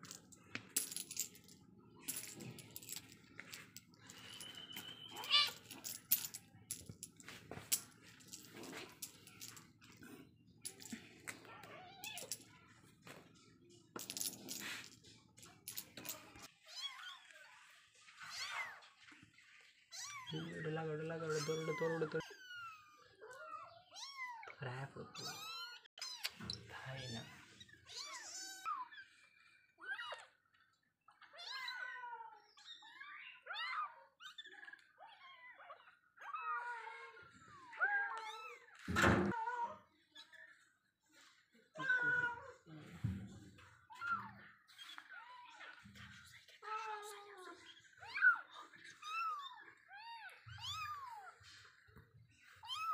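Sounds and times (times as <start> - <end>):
toy clicks and rustles: 0.0 - 11.4, 14.0 - 16.5.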